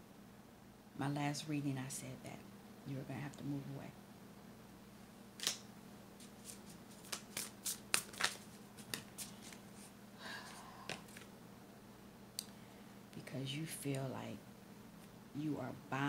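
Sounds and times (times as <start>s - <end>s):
cards shuffling and flicking: 5.4s - 9.9s, 10.9s - 11.3s.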